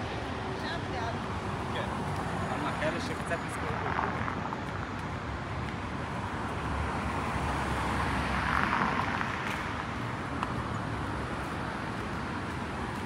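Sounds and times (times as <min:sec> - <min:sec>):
city street traffic: 0:00.0 - 0:13.0
car passing close by: 0:06.6 - 0:10.1.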